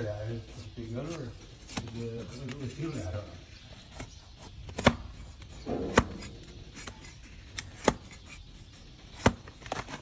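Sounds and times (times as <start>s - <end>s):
hoof knife cracking through hoof: 5.6s - 8.2s.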